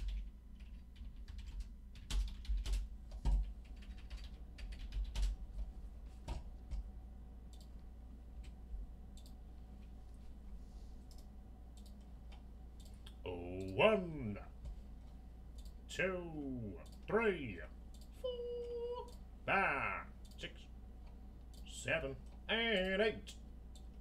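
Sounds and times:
typing on computer keyboard: 0.0 - 5.4
faint steady hum: 0.0 - 24.0.

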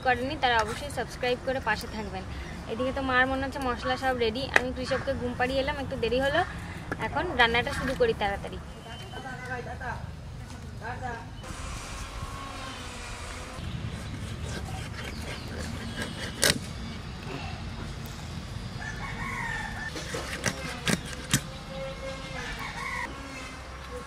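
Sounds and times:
rooster crowing: 18.8 - 20.0, 22.3 - 23.2.

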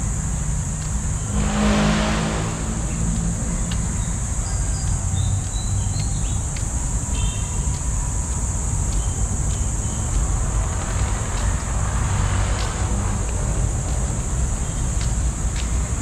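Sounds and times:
high insect drone: 0.0 - 16.0
road traffic rumbling: 0.0 - 16.0
vehicle passing by: 0.4 - 5.2, 9.9 - 16.0.

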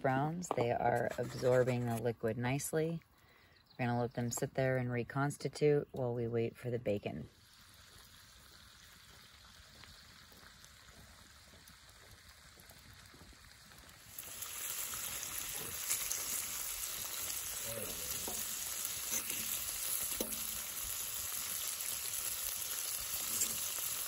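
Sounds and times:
bacon sizzling on a griddle: 7.3 - 24.0
faint hiss: 14.0 - 24.0
fork clicking and scraping: 18.3 - 20.4, 23.2 - 23.8.

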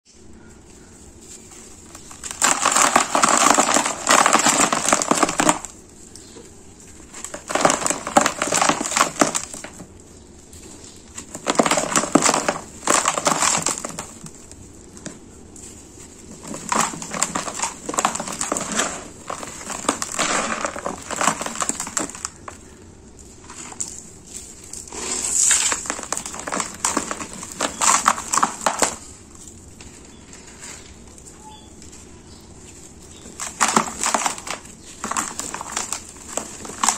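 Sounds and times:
hands crumbling sand-cement mix: 0.1 - 36.9.

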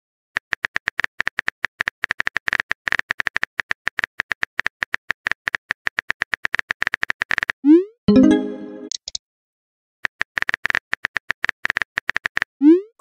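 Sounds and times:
keyboard typing clicks: 8.1 - 9.2.

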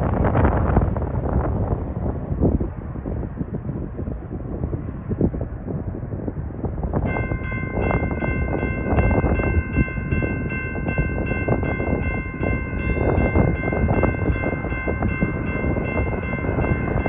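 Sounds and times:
passing train rumble and clatter: 0.0 - 17.0
crossing warning bell ringing: 7.0 - 17.0.

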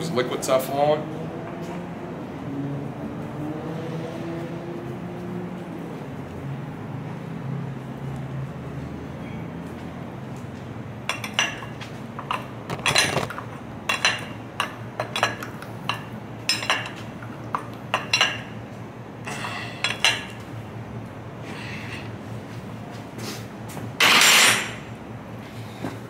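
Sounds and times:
steady low hum: 9.9 - 26.0.

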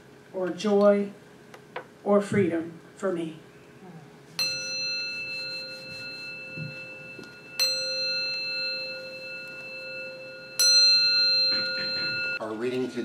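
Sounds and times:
bell ringing: 4.4 - 13.0.

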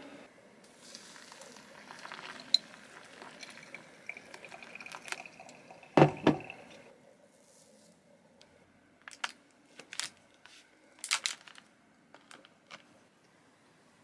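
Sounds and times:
water pouring onto coffee: 0.7 - 6.9.

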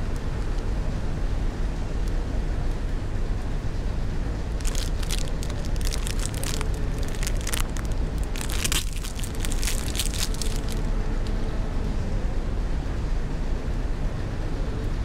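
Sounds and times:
low background rumble: 0.0 - 15.0
plastic wrapper crinkling: 4.6 - 10.9.

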